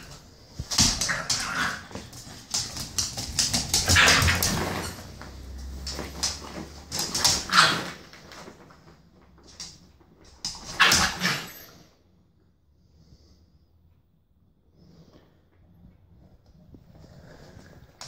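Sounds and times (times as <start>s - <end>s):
puppy growling and yapping: 0.8s - 2.4s, 3.5s - 5.1s, 7.0s - 8.1s, 10.6s - 11.9s.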